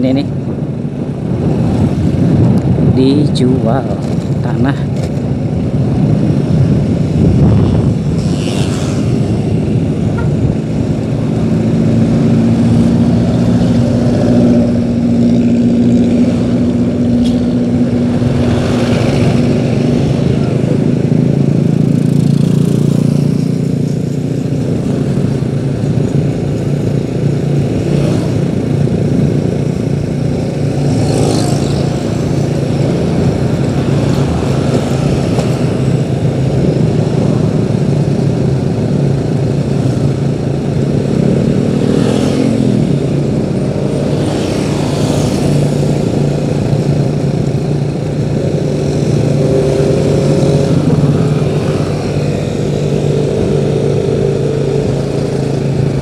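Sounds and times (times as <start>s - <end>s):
vehicle engine running: 9.2s - 56.0s.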